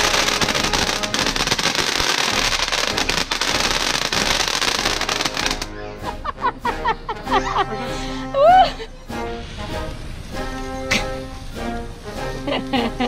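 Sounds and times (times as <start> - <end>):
firework fountain hissing and crackling: 0.0 - 5.7, 9.0 - 13.0.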